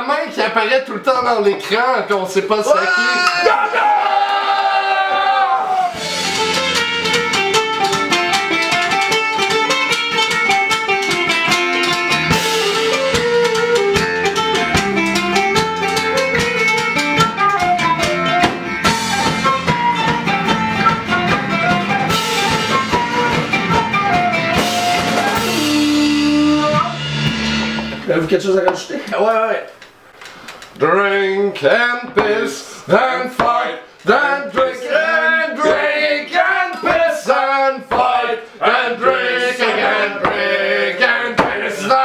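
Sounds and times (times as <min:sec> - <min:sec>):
flute melody: 0:05.6 - 0:27.4
drum kit beat: 0:05.8 - 0:29.1
electric bass: 0:06.0 - 0:10.1, 0:10.8 - 0:28.2
strummed acoustic guitar: 0:06.0 - 0:28.1.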